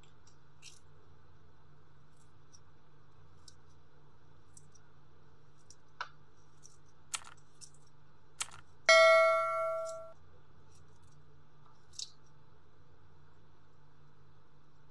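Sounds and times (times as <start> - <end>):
notification ding: 8.9 - 10.1.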